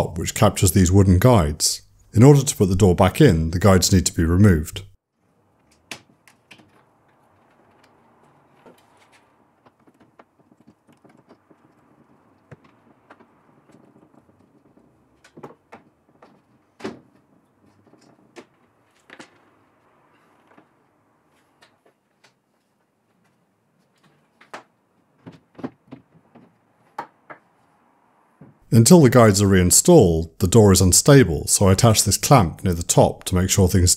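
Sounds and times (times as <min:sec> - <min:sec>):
wooden knocks and clicks: 0:08.6 - 0:20.8, 0:23.9 - 0:27.5.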